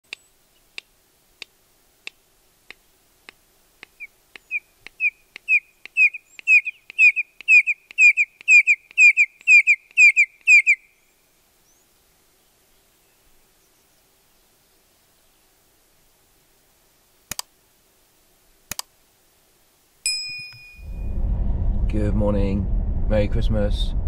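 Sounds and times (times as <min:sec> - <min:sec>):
bird ticking clicks: 0:00.1 - 0:10.7, 0:17.3 - 0:17.5, 0:18.7 - 0:18.9
bird whistled notes: 0:04.4 - 0:10.9.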